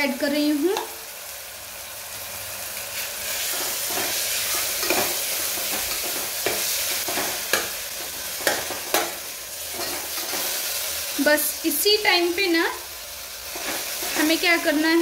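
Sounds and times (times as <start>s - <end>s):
masala sizzling in hot oil: 0.0s - 15.0s.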